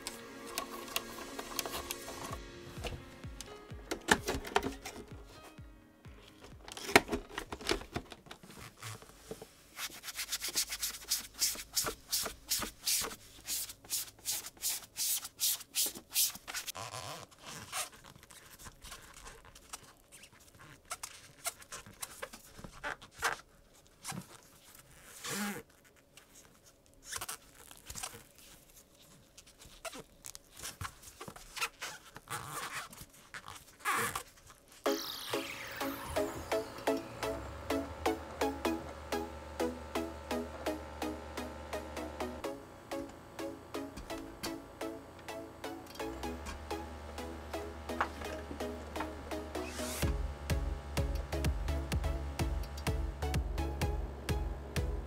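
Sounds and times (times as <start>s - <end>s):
squeaky rubber rubbing: 8.4s - 28.6s, 29.5s - 35.2s.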